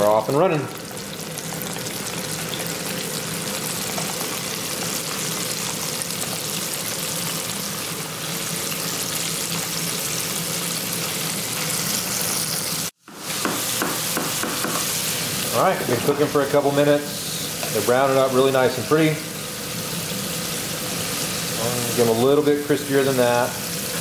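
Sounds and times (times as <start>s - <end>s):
food sizzling in deep oil: 0.0s - 24.0s.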